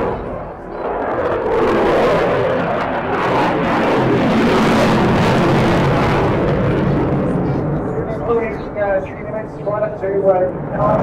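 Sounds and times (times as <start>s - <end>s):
jet roaring overhead: 0.0s - 11.0s.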